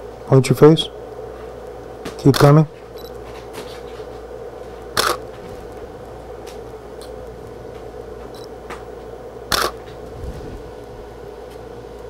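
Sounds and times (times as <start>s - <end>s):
faint steady hum: 0.0s - 12.0s
camera shutter clicks: 5.0s - 5.2s, 9.5s - 9.8s.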